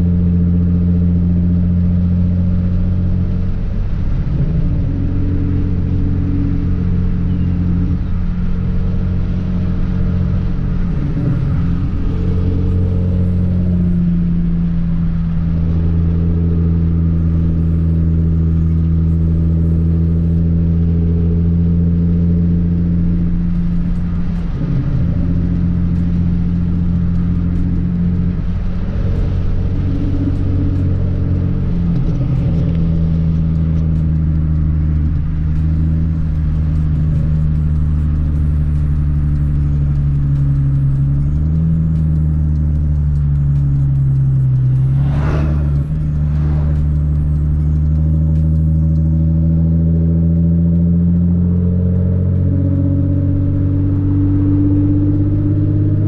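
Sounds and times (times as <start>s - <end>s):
car engine drone in cabin: 0.0s - 56.0s.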